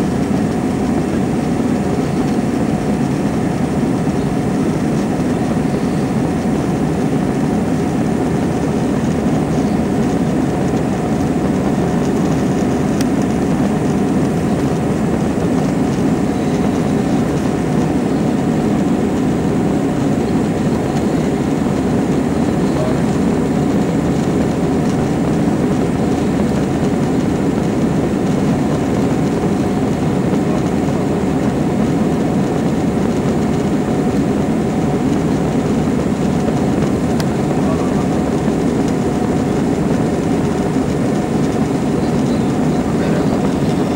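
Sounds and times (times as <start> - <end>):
airliner cabin drone: 0.0 - 43.9.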